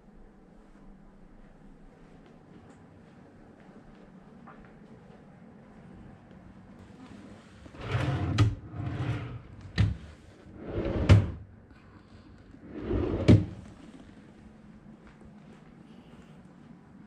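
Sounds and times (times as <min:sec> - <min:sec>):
wooden drawers sliding: 0:07.7 - 0:11.4, 0:12.6 - 0:13.7.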